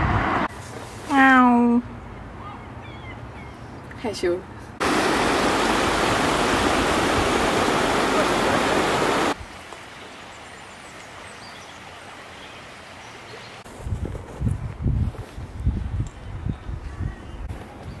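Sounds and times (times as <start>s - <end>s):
river rushing over rocks: 4.8s - 10.0s
wind buffeting microphone: 13.6s - 18.0s.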